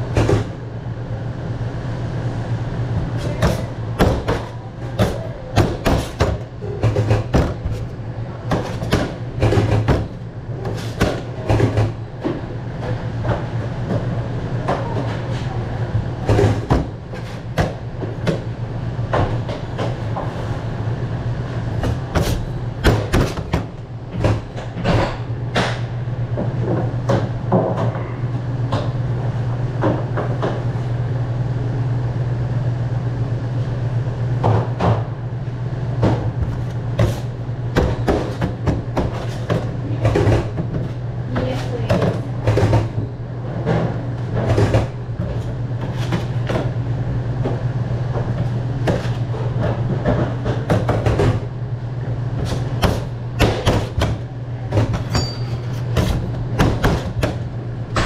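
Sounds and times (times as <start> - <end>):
machine hum: 0.0 - 58.0
kitchen clatter and knocks: 3.2 - 7.9, 8.5 - 14.0, 36.0 - 46.7, 52.4 - 58.0.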